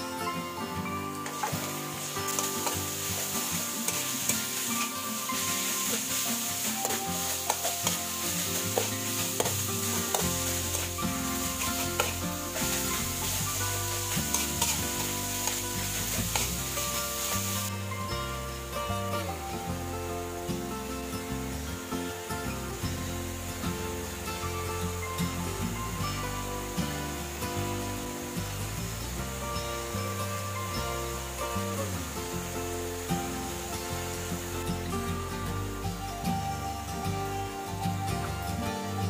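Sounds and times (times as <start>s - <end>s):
metal spatula scraping a wok: 1.2s - 17.7s
meat sizzling in hot oil: 1.2s - 37.0s.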